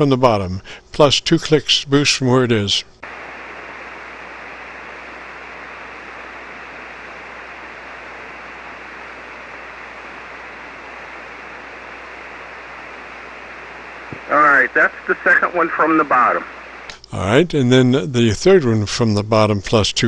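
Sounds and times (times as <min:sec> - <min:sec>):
radio receiver hiss: 0:02.6 - 0:17.3.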